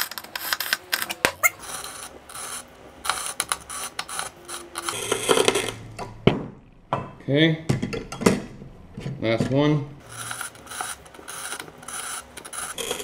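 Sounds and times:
scoring wheel scratching glass: 0.0 - 5.8, 10.0 - 13.0
glass bottle scraping on rollers: 0.0 - 5.9, 10.0 - 13.0.

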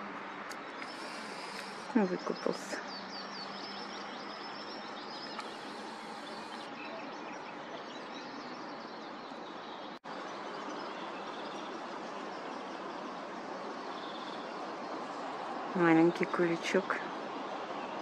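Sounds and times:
outdoor background hiss: 0.0 - 18.0
faint high bird chirps: 0.6 - 10.0.

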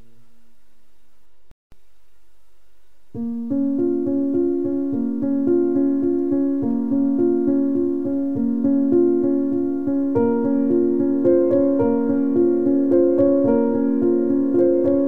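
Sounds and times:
piano music: 3.2 - 15.0.

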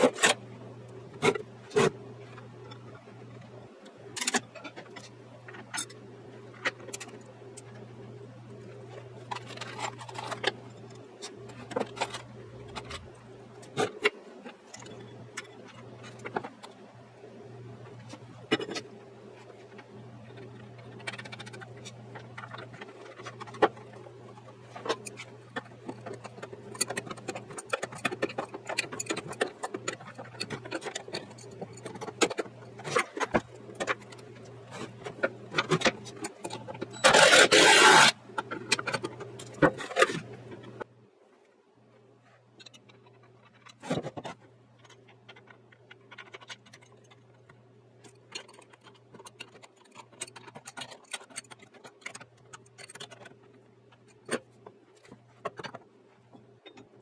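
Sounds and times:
steady low hum: 0.0 - 57.0
tools clicking and scraping on metal: 8.9 - 16.8, 17.8 - 40.9, 42.5 - 57.0.

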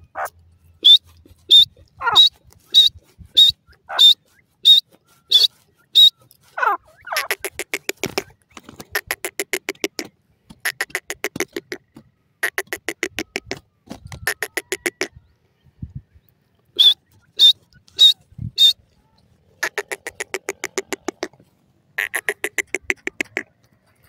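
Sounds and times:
francolin calling: 0.1 - 8.3, 16.8 - 18.8.

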